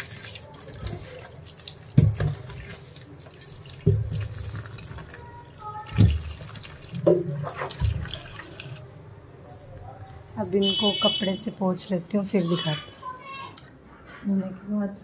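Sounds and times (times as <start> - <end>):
tap water running into sink: 0.0 - 8.8.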